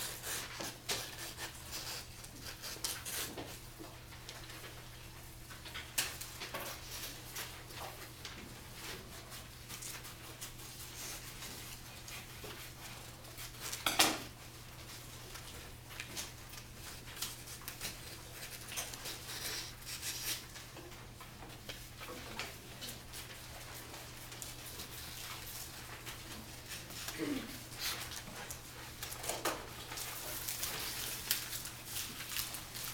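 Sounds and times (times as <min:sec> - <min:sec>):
paper rustling: 0:27.8 - 0:32.9.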